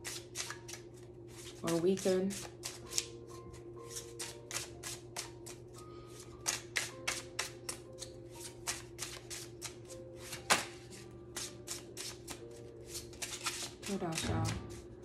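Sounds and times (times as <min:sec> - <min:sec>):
cards being shuffled: 0:00.0 - 0:03.1, 0:06.4 - 0:14.9.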